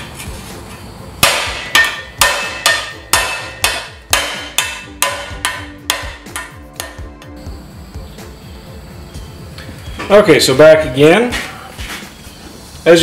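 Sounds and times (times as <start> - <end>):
hammer striking steel sheet: 1.2 - 7.4.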